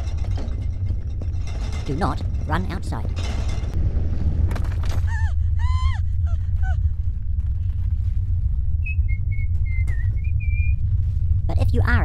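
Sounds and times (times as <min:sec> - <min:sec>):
earthquake rumble: 0:00.0 - 0:12.0.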